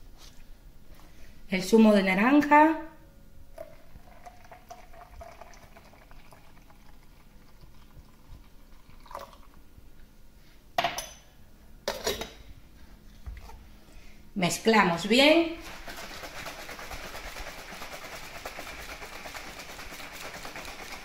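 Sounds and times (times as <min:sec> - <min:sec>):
juice pouring: 0:03.5 - 0:09.7, 0:15.7 - 0:21.0.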